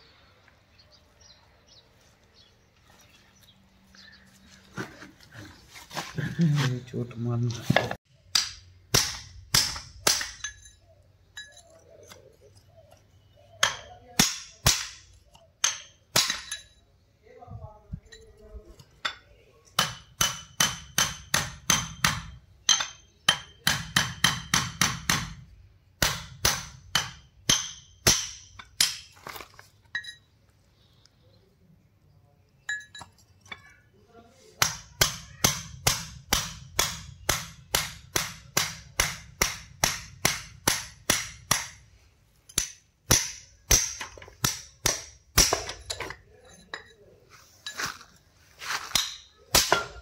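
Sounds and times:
hammer on steel chisel: 19.8s - 25.4s, 34.6s - 41.8s.

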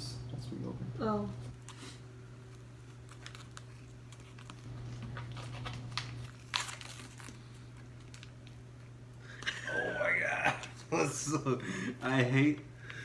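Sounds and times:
plastic pouch tearing and crinkling: 2.4s - 8.7s.

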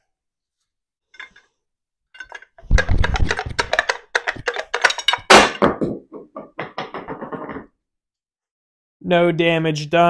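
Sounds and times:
metal tools clanking on metal: 1.2s - 1.5s, 2.2s - 5.6s.

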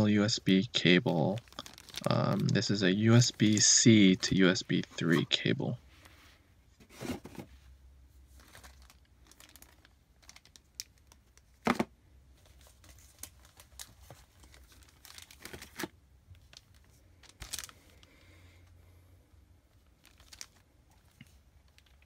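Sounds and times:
plastic packaging crinkling: 1.0s - 4.4s, 8.3s - 11.6s, 12.4s - 18.1s, 19.7s - 22.0s.

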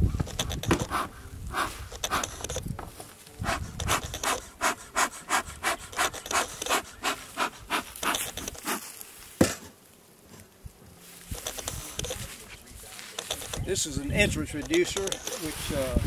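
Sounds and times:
bellows puffing air: 0.2s - 2.6s, 3.4s - 8.9s.

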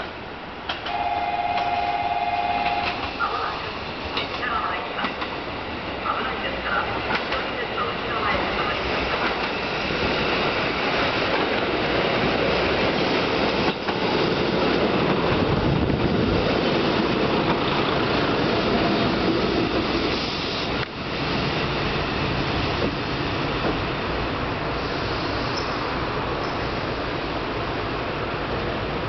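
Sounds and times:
train wheels on rails: 0.0s - 29.0s.

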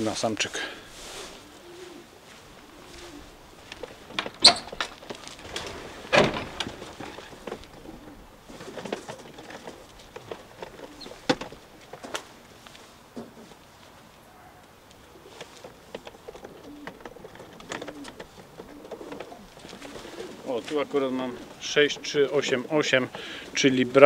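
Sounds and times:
pigeons cooing: 0.7s - 12.2s, 14.2s - 24.0s
wooden door and metal bolts clicking: 4.0s - 7.9s, 15.9s - 19.8s.

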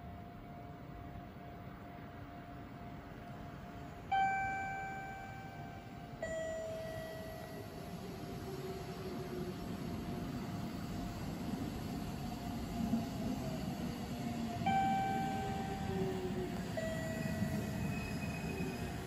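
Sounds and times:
train rumble: 0.0s - 19.0s
two-note ding-dong chime: 4.1s - 7.6s.

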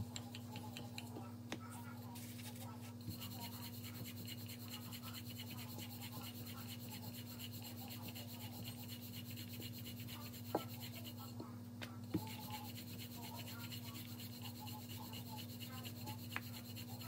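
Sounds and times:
constant low hum: 0.0s - 17.0s
rolling pin rubbing on dough: 0.4s - 11.5s, 12.1s - 17.0s.

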